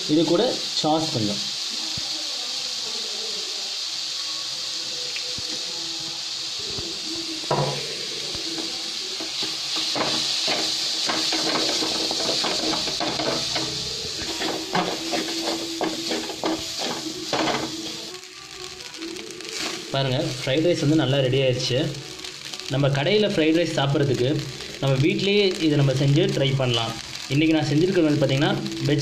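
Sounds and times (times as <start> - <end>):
rice sizzling in a pan: 0.0 - 29.0
spatula scraping and knocking pan: 8.5 - 18.0.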